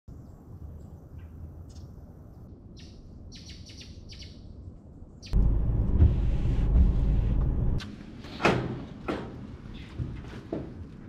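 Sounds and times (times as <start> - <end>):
loud low rumble: 5.4 - 7.8.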